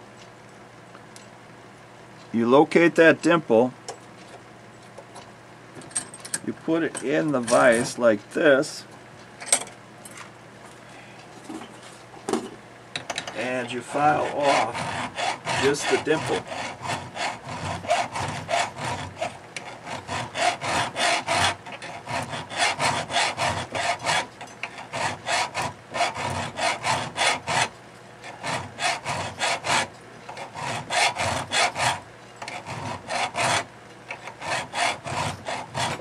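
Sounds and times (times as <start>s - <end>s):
hand file rasping on steel: 13.4s - 36.0s.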